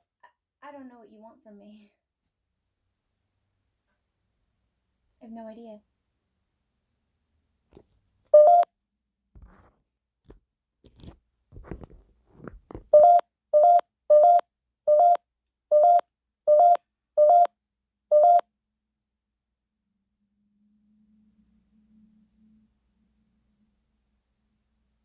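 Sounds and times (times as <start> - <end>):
phone app alarm beeps: 8.3 - 8.7, 12.9 - 17.5, 18.1 - 18.5.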